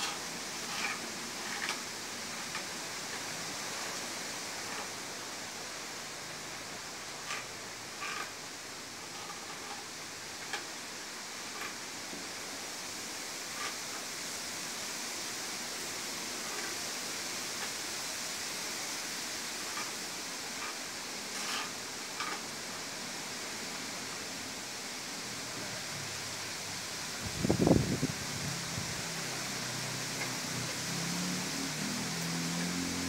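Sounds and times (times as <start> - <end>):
wind rushing through foliage: 0.0 - 33.0
wind buffeting microphone: 27.2 - 29.1.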